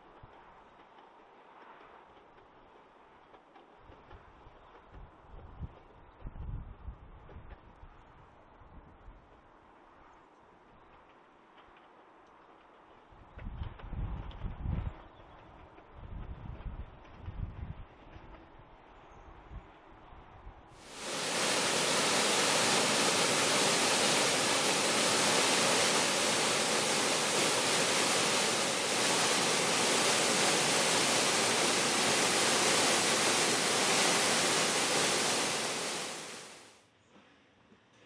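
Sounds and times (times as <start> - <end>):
loud steady hiss: 20.8 - 36.7.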